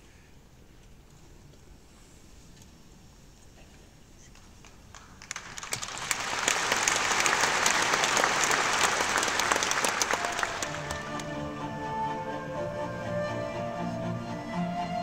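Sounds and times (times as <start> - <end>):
audience applauding: 4.6 - 11.8.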